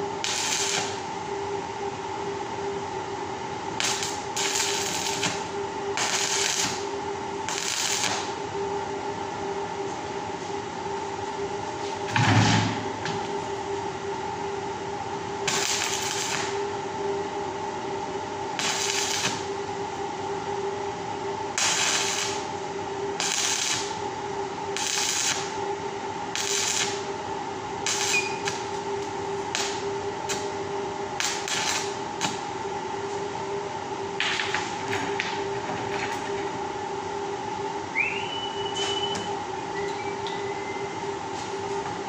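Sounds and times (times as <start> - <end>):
steady hum: 0.0 - 42.0
electric arc welding bursts: 0.2 - 1.0, 3.8 - 5.4, 6.0 - 6.8, 7.5 - 8.3, 15.5 - 16.6, 18.6 - 19.4, 21.6 - 22.4, 23.2 - 23.9, 24.8 - 25.5, 26.4 - 27.0, 27.8 - 28.6, 31.2 - 32.0.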